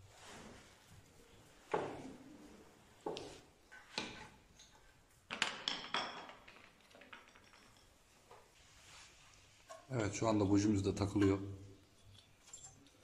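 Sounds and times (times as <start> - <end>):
metal tools knocking and clinking: 5.4 - 8.0.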